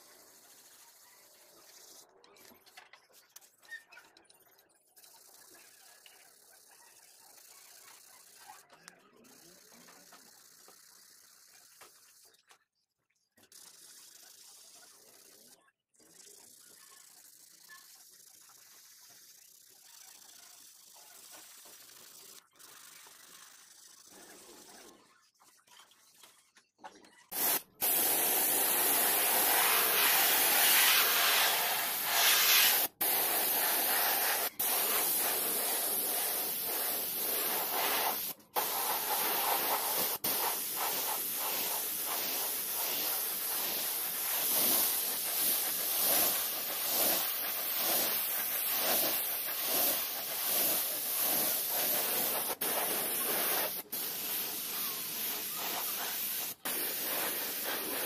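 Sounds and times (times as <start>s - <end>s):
spray gun hissing: 27.3s - 58.0s.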